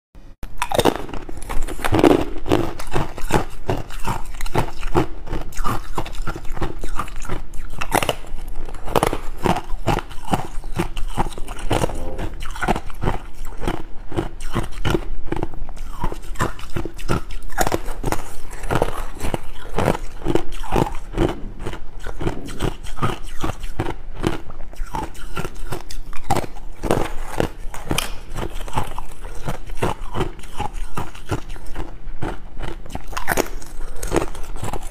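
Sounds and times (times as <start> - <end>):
chewing crunchy ice: 0.4 - 34.9.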